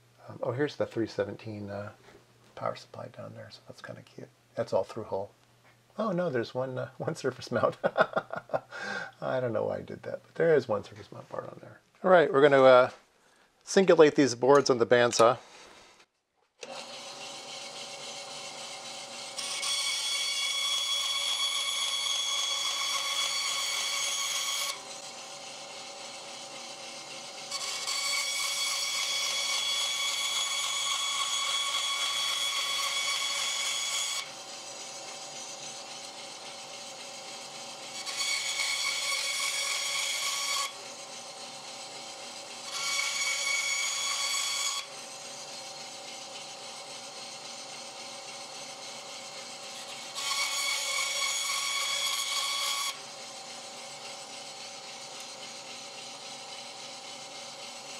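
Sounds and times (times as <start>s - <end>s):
bandsaw cutting whine: 16.6s - 57.9s
bandsaw running freely: 16.6s - 57.9s.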